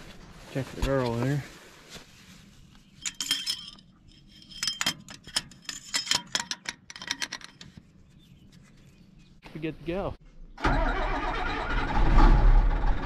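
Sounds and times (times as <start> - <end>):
light metallic clinks and rattles: 2.8 - 8.1.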